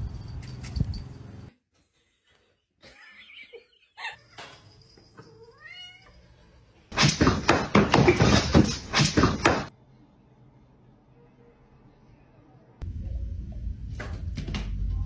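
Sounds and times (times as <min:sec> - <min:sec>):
cat meowing: 0:05.4 - 0:06.2
cats scuffling harshly: 0:07.0 - 0:09.7.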